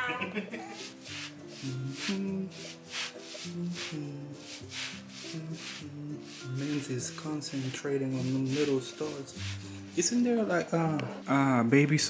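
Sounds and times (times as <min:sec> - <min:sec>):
soft shaker swish: 0:00.7 - 0:10.2.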